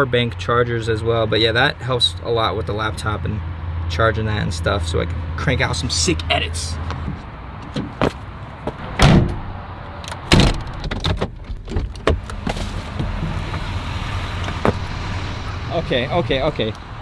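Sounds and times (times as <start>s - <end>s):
heavy thumps: 6.9s - 9.6s, 14.5s - 15.0s
car door swinging open: 7.1s - 13.7s.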